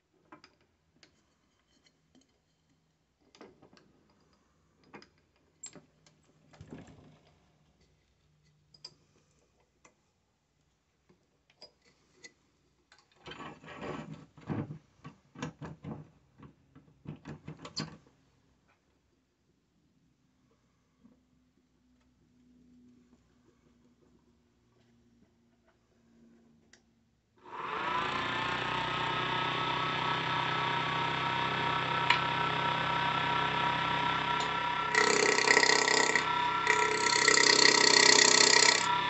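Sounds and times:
faint clicks and knocks on lathe: 34.4s - 39.0s.

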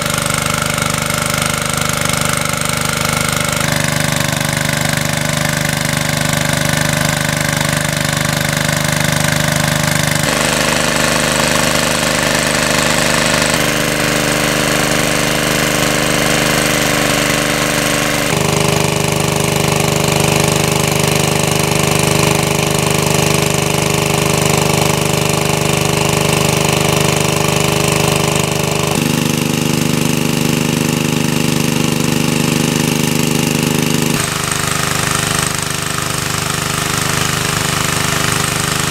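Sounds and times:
water pump engine running: 0.0s - 38.9s
water jet spraying: 9.0s - 23.5s.

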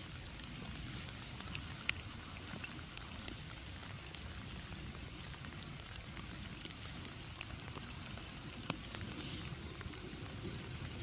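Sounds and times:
low background hiss: 0.0s - 11.0s
raindrops plinking into pond: 0.0s - 11.0s.

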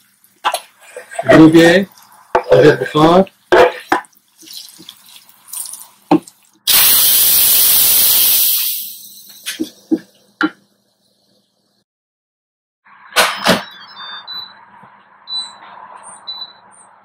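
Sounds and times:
pressure cooker steam hiss: 6.7s - 9.7s.

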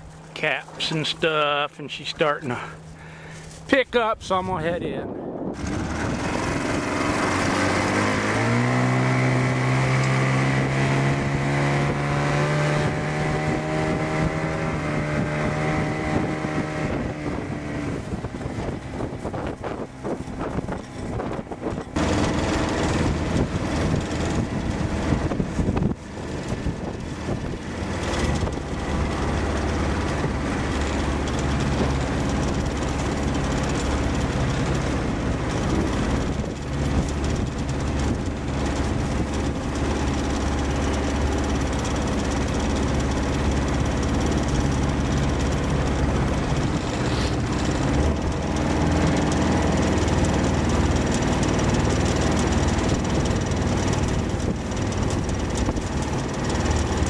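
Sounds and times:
outboard motor running: 0.0s - 57.0s
wind: 0.0s - 57.0s.

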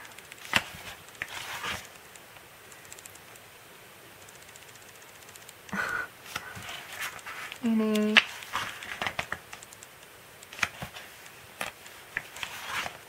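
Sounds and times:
book page turning: 0.4s - 2.0s, 6.3s - 9.5s, 10.4s - 13.0s
faint handling ticks: 4.2s - 12.5s.

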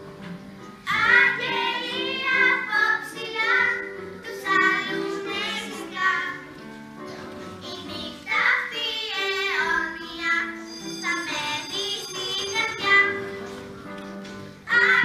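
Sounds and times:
children singing: 0.9s - 6.5s.

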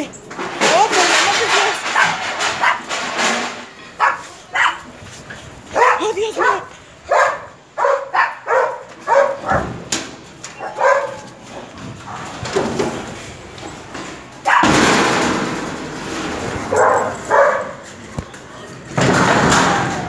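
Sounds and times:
dogs barking: 1.8s - 3.0s, 3.9s - 4.9s, 5.7s - 9.9s, 10.5s - 12.4s, 14.4s - 14.8s, 16.6s - 17.9s.

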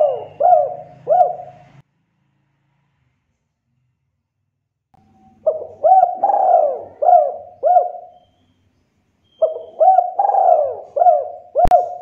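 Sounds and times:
dove cooing: 0.0s - 1.8s, 5.3s - 8.3s, 9.4s - 12.0s.

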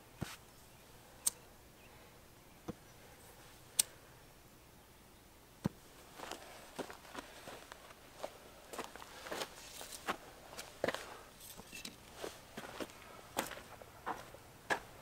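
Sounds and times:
footsteps on dry ground: 5.9s - 15.0s.

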